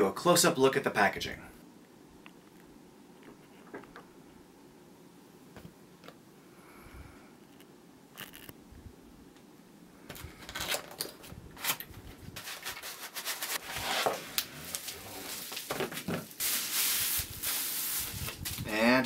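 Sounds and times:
plastic crinkling: 10.4 - 18.7
cardboard scraping: 12.4 - 16.6.

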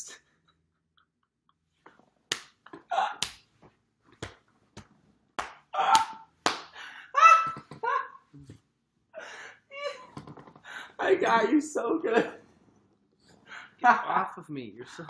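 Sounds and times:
sharp smacks: 2.3 - 3.5.

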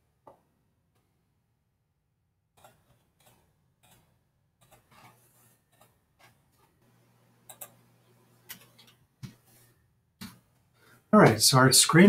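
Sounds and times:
computer mouse clicks: 7.4 - 7.8, 8.4 - 9.4.

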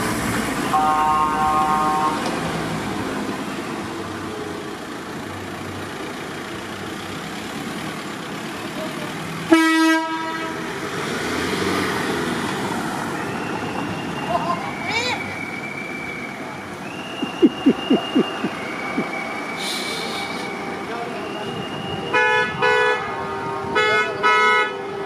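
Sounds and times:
car horns honking: 0.6 - 2.4, 9.5 - 10.7, 17.0 - 20.7, 21.9 - 25.0
vehicles driving over cobbles: 10.8 - 21.8.

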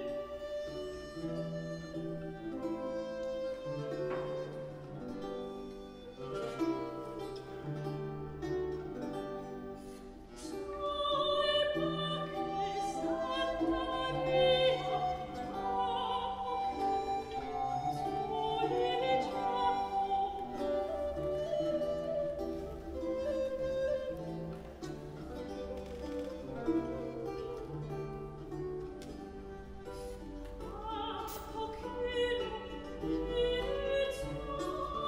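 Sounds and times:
soprano singing with vibrato: 10.3 - 28.7, 29.3 - 35.0.

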